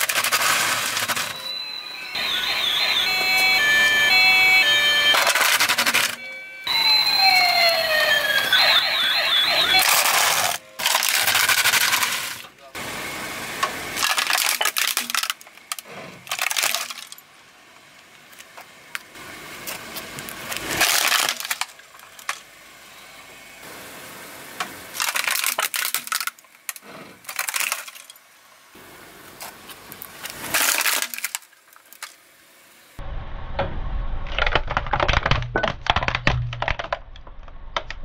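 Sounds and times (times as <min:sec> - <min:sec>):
plastic toy crunching under tyre: 0:00.0 - 0:01.4, 0:05.1 - 0:06.2, 0:09.7 - 0:12.4, 0:14.0 - 0:17.2, 0:19.7 - 0:22.5, 0:24.9 - 0:28.2, 0:29.4 - 0:32.2, 0:34.3 - 0:37.2.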